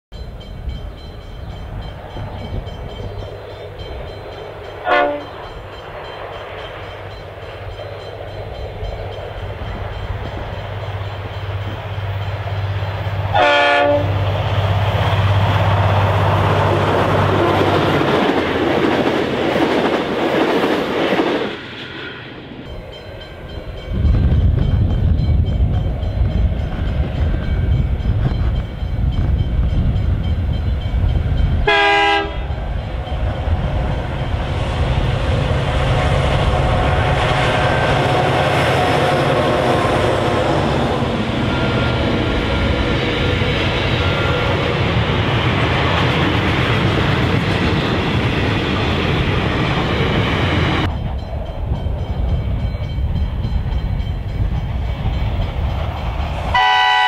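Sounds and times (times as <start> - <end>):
diesel locomotive engine: 0.1 - 57.0
low locomotive engine rumble: 0.1 - 57.0
train wheel noise: 0.1 - 57.0
train horn: 4.8 - 5.6, 13.3 - 14.2, 31.6 - 32.6, 56.5 - 57.0.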